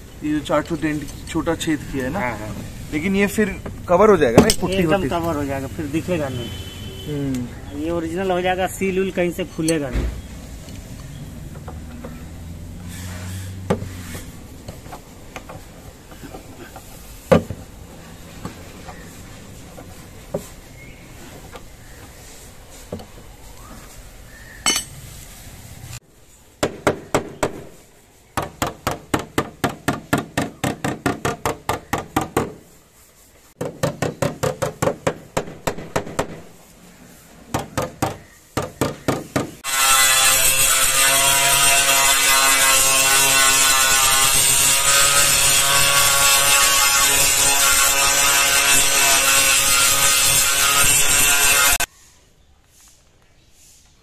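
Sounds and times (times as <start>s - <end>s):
rhythmic hand tool strokes: 39.6s - 51.9s.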